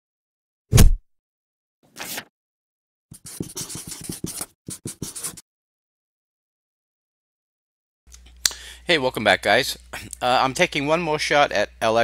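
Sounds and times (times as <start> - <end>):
marker pen scratching on paper: 3.1 - 5.4.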